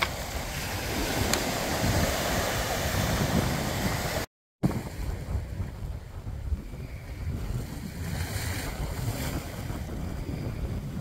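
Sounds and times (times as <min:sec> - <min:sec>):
small waves washing onto sand: 0:00.0 - 0:04.3
wind buffeting microphone: 0:00.0 - 0:11.0.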